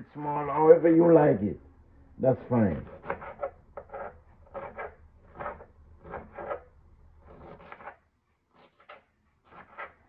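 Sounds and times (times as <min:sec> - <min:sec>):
knife crunching through cabbage: 0:07.2 - 0:10.0.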